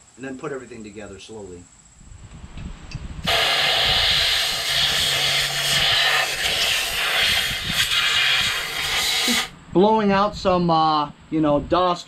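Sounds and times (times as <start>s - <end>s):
compressed air blow gun hissing: 3.2s - 9.5s.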